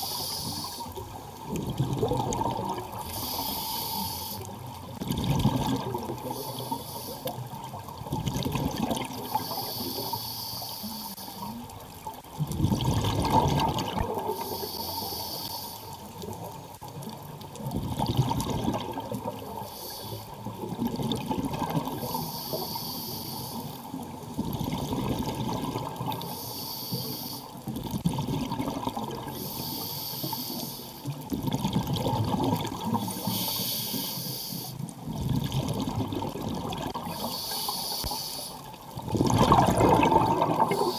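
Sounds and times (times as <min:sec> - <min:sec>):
hissing regulator inhale: 0:00.0 - 0:01.0, 0:03.0 - 0:04.7, 0:06.2 - 0:07.4, 0:09.2 - 0:11.6, 0:14.3 - 0:16.0, 0:19.5 - 0:20.5, 0:21.9 - 0:23.9, 0:26.2 - 0:27.6, 0:29.3 - 0:31.1, 0:32.9 - 0:34.9, 0:37.1 - 0:38.7, 0:40.6 - 0:40.9
gurgling exhaled bubbles: 0:00.0 - 0:09.9, 0:11.5 - 0:14.8, 0:16.2 - 0:22.6, 0:23.9 - 0:26.4, 0:27.6 - 0:29.6, 0:31.1 - 0:33.6, 0:34.8 - 0:37.7, 0:38.6 - 0:40.9.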